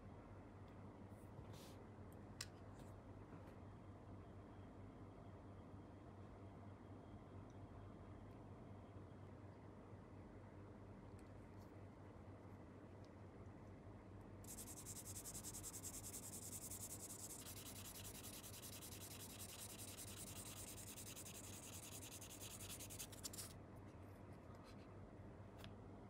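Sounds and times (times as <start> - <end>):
sanding sponge rasping on plastic: 14.5 - 23.5.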